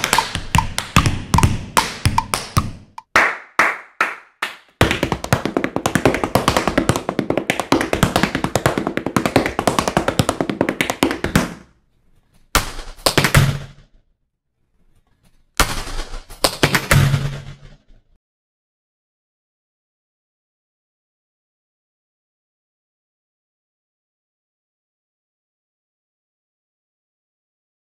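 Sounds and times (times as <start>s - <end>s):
tap shoes on wooden floor: 0.0s - 3.1s, 4.8s - 11.7s.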